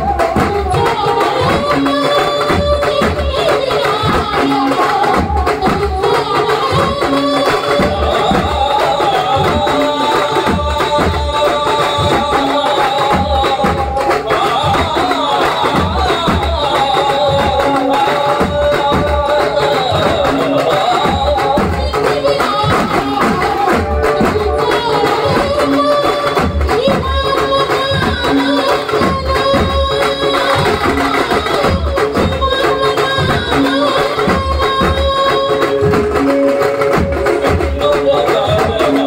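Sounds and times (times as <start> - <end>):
banjo melody: 23.1 - 27.3.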